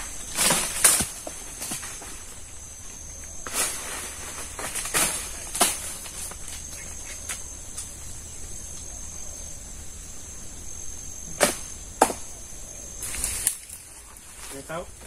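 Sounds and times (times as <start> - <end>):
high insect chirring: 0.0 - 15.0
sharp knocks: 11.3 - 12.3.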